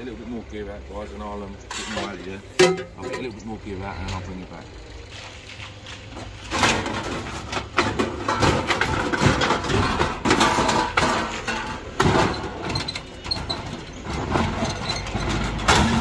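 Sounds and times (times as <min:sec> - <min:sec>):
scrap metal clattering: 0:01.7 - 0:03.4, 0:05.2 - 0:16.0.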